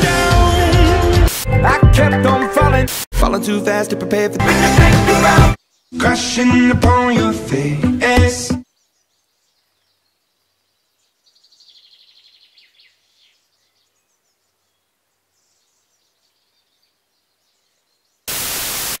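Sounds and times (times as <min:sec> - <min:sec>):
static hiss: 0:18.2 - 0:19.0.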